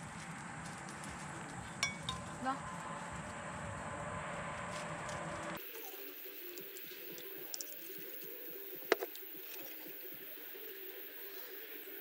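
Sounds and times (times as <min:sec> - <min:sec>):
tableware clicking and clinking: 0:01.8 - 0:02.3.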